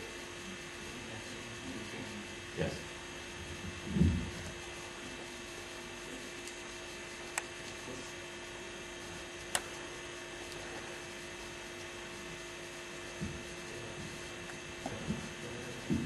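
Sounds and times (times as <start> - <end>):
electrical mains hum: 0.0 - 16.0
faint low thump: 3.8 - 4.4, 13.1 - 14.1.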